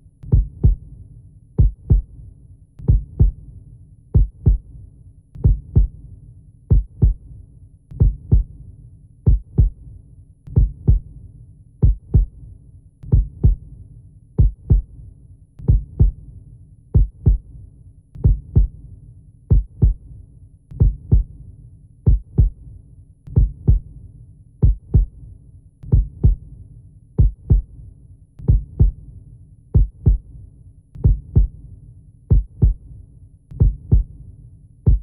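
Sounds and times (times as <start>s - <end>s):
heartbeat thumps: 0.3s - 0.8s, 1.6s - 2.1s, 2.8s - 3.4s, 4.2s - 4.6s, 5.4s - 6.0s, 6.7s - 7.2s, 8.0s - 8.5s, 9.3s - 9.8s, 10.5s - 11.1s, 11.8s - 12.3s, 13.1s - 13.6s, 14.4s - 14.9s, 15.6s - 16.2s, 17.0s - 17.4s, 18.2s - 18.8s, 19.5s - 20.0s, 20.8s - 21.3s, 22.1s - 22.6s, 23.3s - 23.9s, 24.6s - 25.1s, 25.9s - 26.4s, 27.2s - 27.7s, 28.4s - 29.0s, 29.8s - 30.3s, 31.0s - 31.6s, 32.3s - 32.8s, 33.6s - 34.1s.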